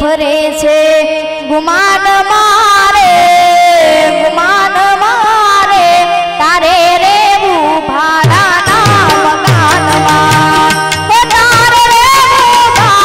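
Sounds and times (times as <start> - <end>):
harmonium: 0.0 - 13.0
woman singing: 0.0 - 13.0.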